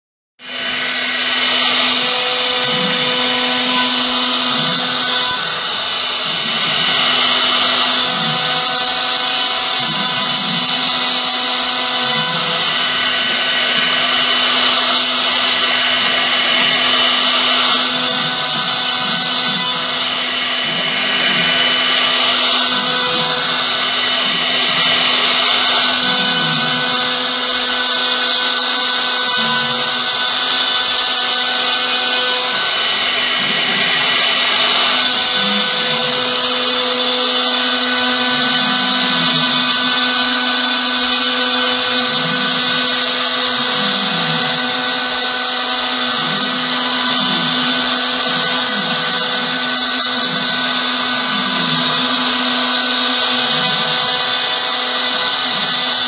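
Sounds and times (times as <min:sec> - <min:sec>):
cnc spindle whining: 0:00.4 - 0:56.0.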